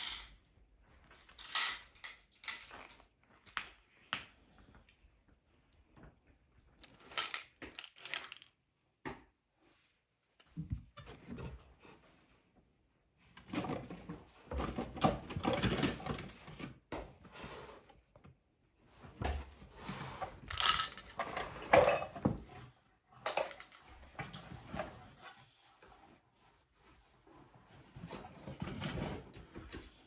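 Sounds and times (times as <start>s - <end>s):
toys rustling and clattering: 0.0s - 3.9s, 6.6s - 8.7s, 13.3s - 17.3s, 19.0s - 30.0s.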